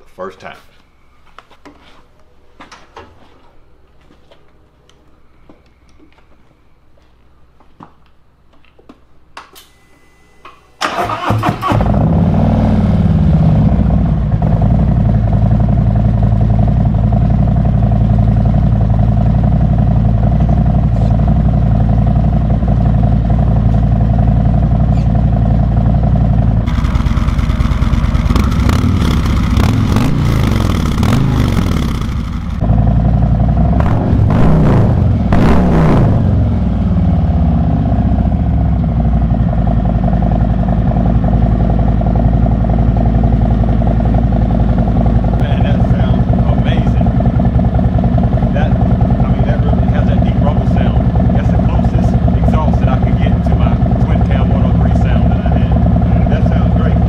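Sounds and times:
motorcycle engine revving: 10.8 - 57.0
motorcycle engine idling: 12.9 - 34.3, 36.2 - 57.0.

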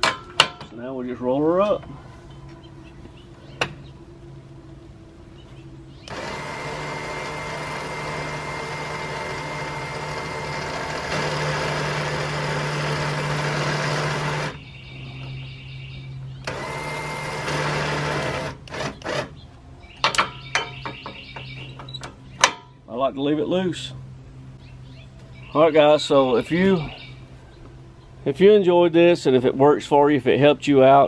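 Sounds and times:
electric winch motor whirring: 5.9 - 19.4.

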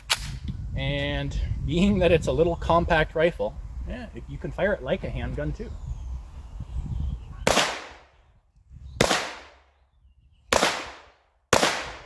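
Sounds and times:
pistol gunshots with echo: 7.5 - 8.1, 9.0 - 9.7, 10.5 - 12.0.

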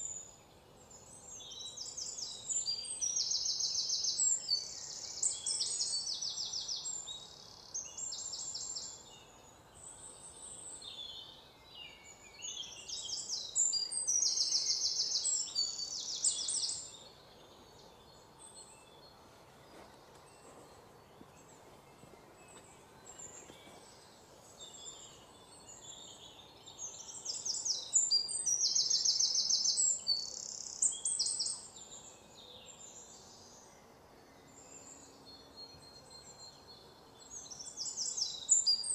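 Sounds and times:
birds chirping and trilling: 0.0 - 38.9
faint steady background noise: 0.0 - 38.9.

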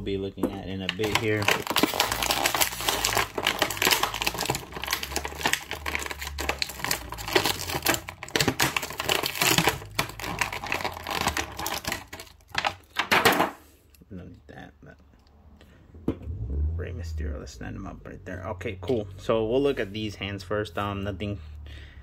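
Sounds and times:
plastic packaging crinkling: 0.8 - 13.2.

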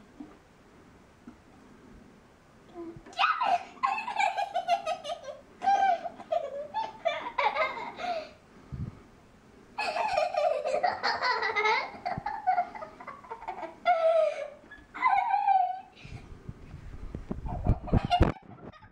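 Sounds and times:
girl giggling: 3.2 - 8.4, 9.8 - 16.1.

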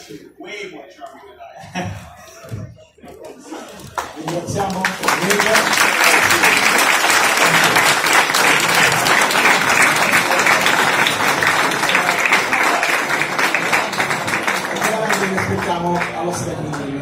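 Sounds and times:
audience applauding: 3.7 - 17.0.

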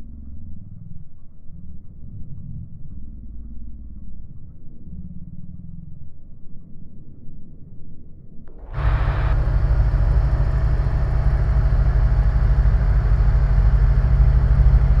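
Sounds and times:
light aircraft engine droning: 8.6 - 15.0.

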